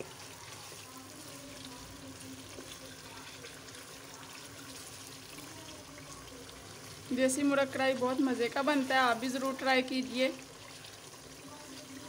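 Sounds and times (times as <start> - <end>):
wooden spoon stirring: 0.0 - 6.1
food sizzling in oil: 0.0 - 12.0.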